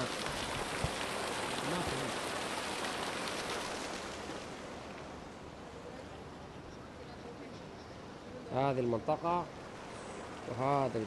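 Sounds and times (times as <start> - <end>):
water gushing from a pipe: 0.0 - 4.6
water splashing on stones: 0.0 - 5.0.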